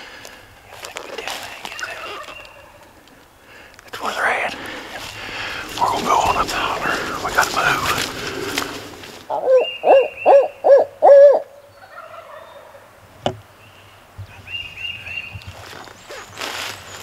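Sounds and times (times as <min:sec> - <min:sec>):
distant turkey gobbling: 0:01.8 - 0:03.0, 0:05.0 - 0:12.9
owl hoots call: 0:09.3 - 0:12.6.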